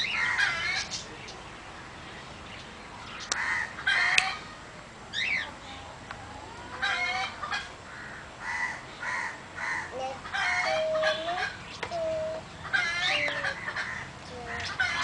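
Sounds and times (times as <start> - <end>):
chickens clucking: 6.2 - 7.8, 9.7 - 15.0.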